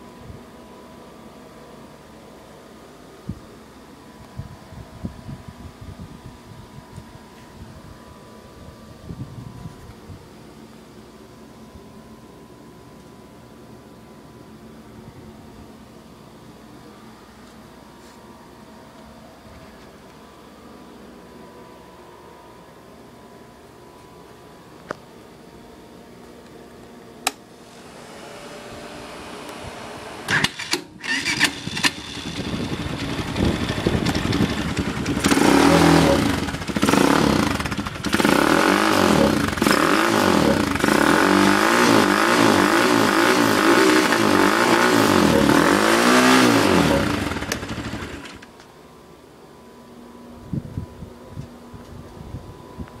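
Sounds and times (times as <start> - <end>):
atv engine starting and revving: 27.8 - 48.5.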